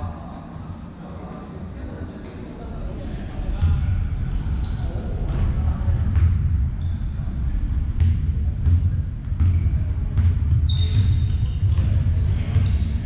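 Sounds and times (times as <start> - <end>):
sneakers squeaking on floor: 4.2 - 13.0
basketball bouncing: 5.3 - 6.6, 7.3 - 13.0.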